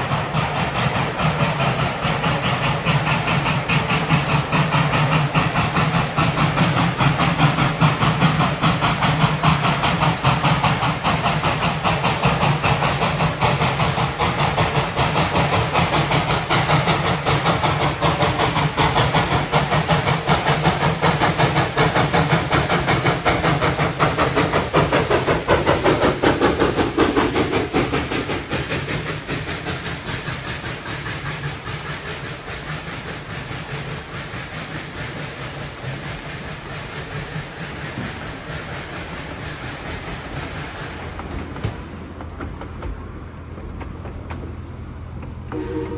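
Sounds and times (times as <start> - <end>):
steam hissing: 0.0 - 45.9
steam locomotive exhaust beat: 0.0 - 45.9
train coaches rolling on rails: 0.0 - 45.9.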